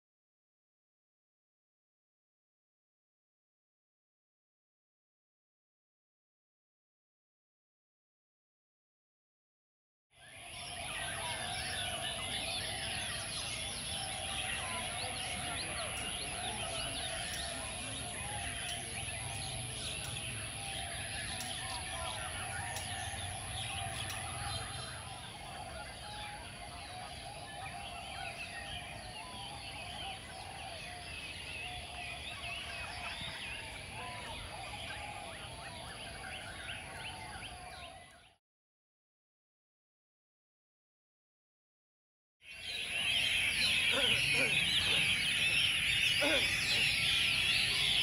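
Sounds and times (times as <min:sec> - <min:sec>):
songbirds singing and chirping: 0:10.2 - 0:38.4, 0:42.4 - 0:48.0.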